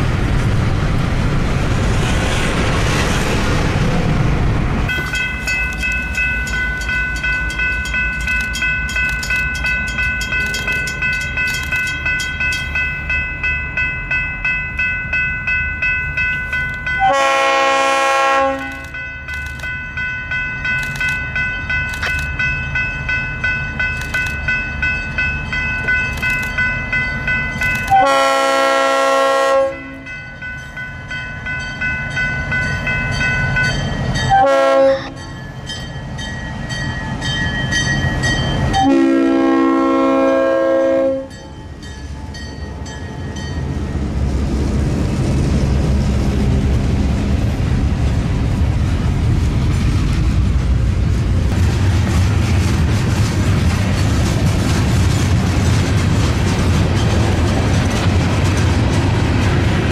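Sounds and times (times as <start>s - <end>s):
freight cars rumbling on rails: 0.0s - 59.9s
crossing warning bell ringing: 4.9s - 44.4s
locomotive air horn: 17.0s - 19.0s, 27.9s - 30.1s, 34.3s - 35.2s, 38.8s - 41.4s.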